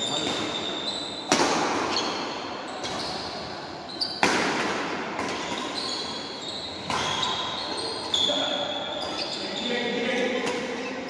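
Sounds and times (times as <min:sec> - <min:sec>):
shoe squeaks on court floor: 0:00.0 - 0:04.3, 0:05.3 - 0:11.0
racket hitting shuttlecock: 0:01.3 - 0:03.2, 0:04.1 - 0:06.0, 0:06.8 - 0:07.4.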